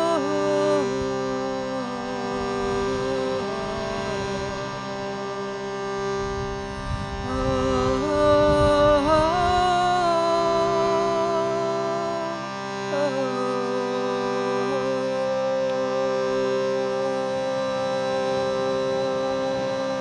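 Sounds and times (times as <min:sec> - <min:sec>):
shruti box drone: 0:00.0 - 0:20.0.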